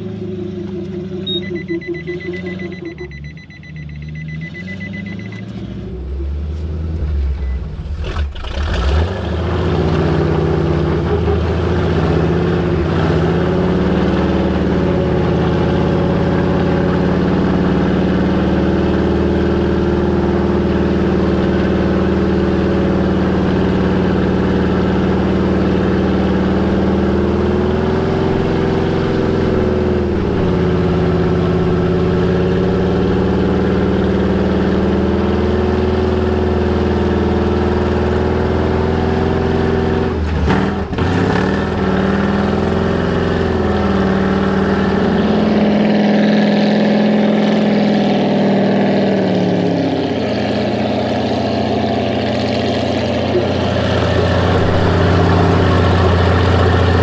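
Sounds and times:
vehicle engine running: 0:00.0 - 0:57.0
vehicle warning beep: 0:00.4 - 0:06.0, 0:07.3 - 0:07.8.

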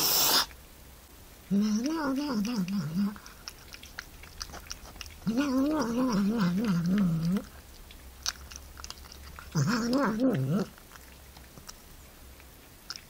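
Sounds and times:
cat warbling while eating: 0:01.5 - 0:11.9
soft chewing clicks: 0:01.5 - 0:13.0.

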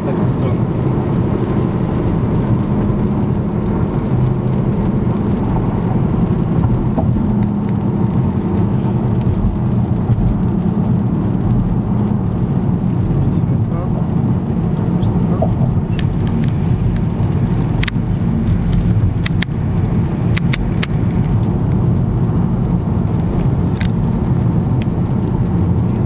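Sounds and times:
car road and engine noise: 0:00.0 - 0:26.0
sharp ticks: 0:18.7 - 0:19.6.

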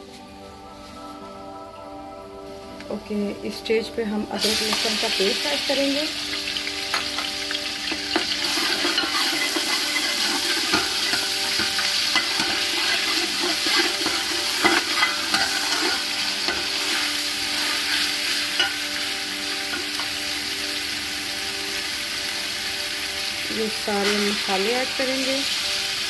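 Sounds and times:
food sizzling in hot oil: 0:04.1 - 0:26.0
metal spatula scraping pot: 0:07.4 - 0:19.1.

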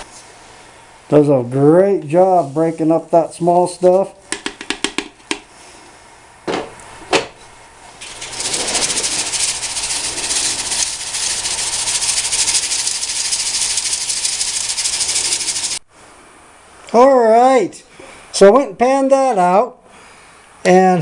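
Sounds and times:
grit rattling on sieve mesh: 0:08.0 - 0:15.8.

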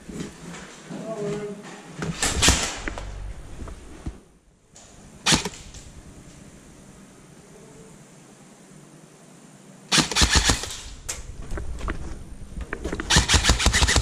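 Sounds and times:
airsoft rifle single shots: 0:05.2 - 0:05.8
airsoft rifle firing bursts: 0:09.9 - 0:11.0, 0:13.1 - 0:14.0.

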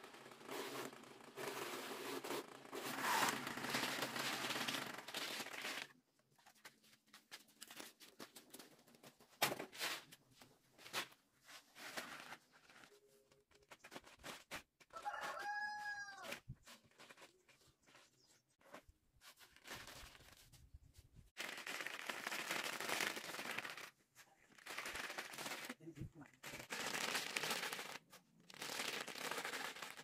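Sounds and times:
dry strips raked across plastic tarp: 0:00.4 - 0:06.0, 0:21.4 - 0:30.0
rooster crowing: 0:14.9 - 0:16.3.

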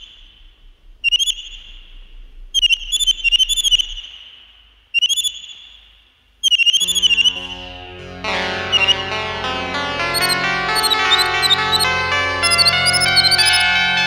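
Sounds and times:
warbling synthesizer tones: 0:00.0 - 0:04.0, 0:06.8 - 0:14.0
synth bass and chords: 0:06.8 - 0:14.0.

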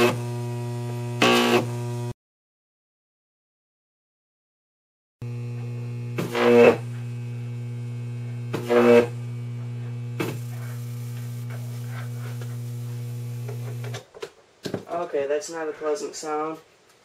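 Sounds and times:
transformer mains hum: 0:05.2 - 0:14.0
faint electrical crackling: 0:08.7 - 0:14.0
high-voltage arcing: 0:10.1 - 0:14.0.

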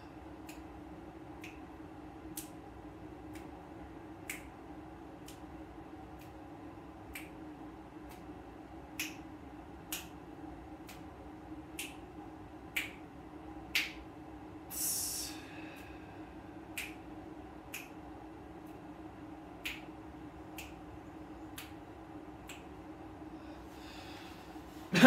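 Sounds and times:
low air vent hum: 0:00.0 - 0:25.0
short hissing breath: 0:14.7 - 0:16.2, 0:23.5 - 0:24.9.

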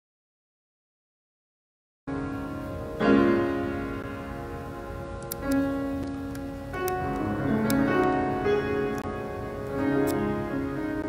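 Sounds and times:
slow piano music: 0:02.1 - 0:11.0.

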